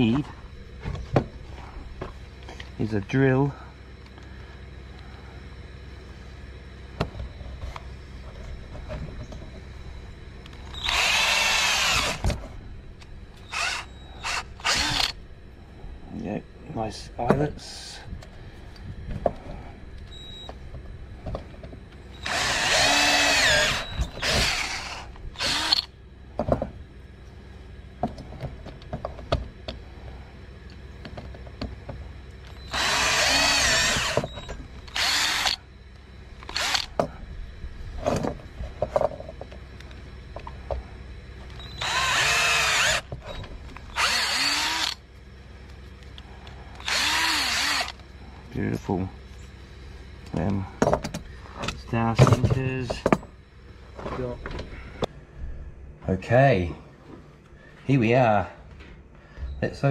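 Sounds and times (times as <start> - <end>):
electric drill drilling lead: 10.7 - 12.3, 13.4 - 15.2, 22.1 - 25.9, 32.6 - 35.6, 36.4 - 37.0, 41.6 - 43.1, 43.9 - 45.0, 46.8 - 48.0.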